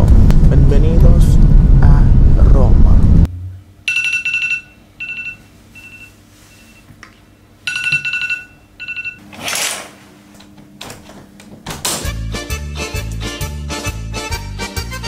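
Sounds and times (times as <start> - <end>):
smartphone ringing: 3.9 - 6.8, 7.6 - 9.3.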